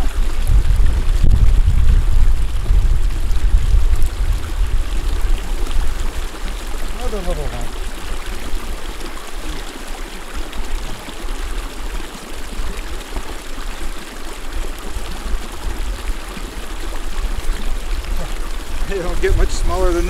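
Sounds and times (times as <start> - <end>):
low rumble: 0.0 - 5.4
creek flowing: 0.0 - 20.0.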